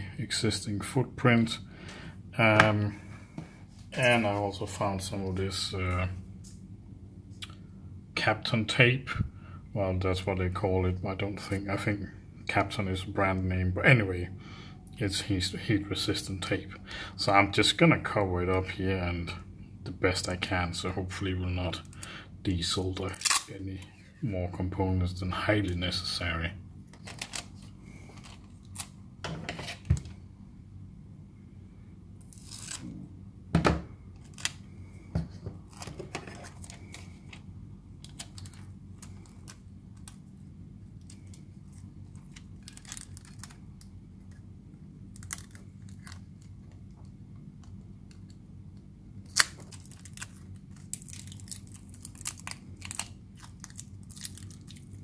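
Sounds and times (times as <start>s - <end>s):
tape ripping: 23.1s - 23.6s, 32.2s - 33.0s, 49.3s - 54.9s.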